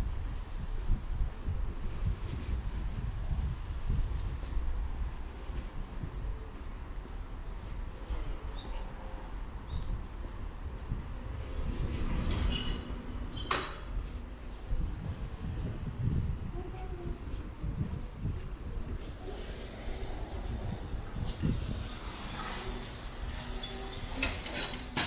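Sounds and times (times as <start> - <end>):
high-pitched insect drone: 6.1 - 11.1, 16.4 - 24.4.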